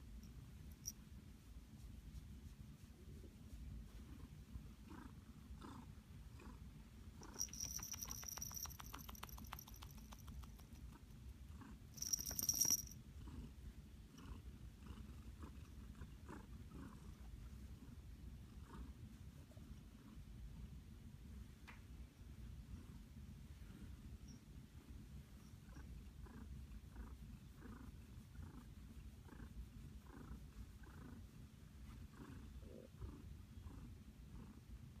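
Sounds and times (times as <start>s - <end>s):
cat purring: 0.6s - 20.9s, 22.5s - 35.0s
scratchy rustling and clicking: 7.2s - 10.9s.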